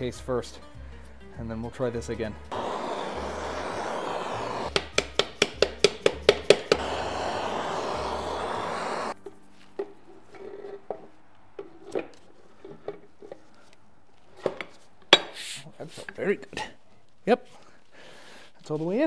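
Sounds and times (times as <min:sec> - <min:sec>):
gas torch flame hissing: 0:02.5 - 0:04.9, 0:06.0 - 0:09.2.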